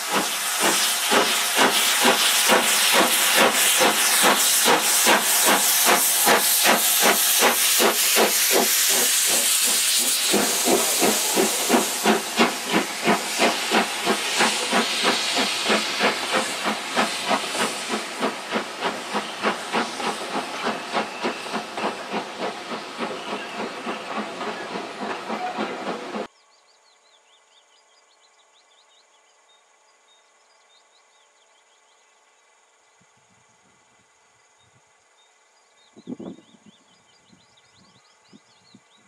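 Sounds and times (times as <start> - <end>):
steam hissing: 0.0 - 26.3
steam locomotive chuffing: 0.0 - 26.3
faint outdoor background: 26.2 - 39.0.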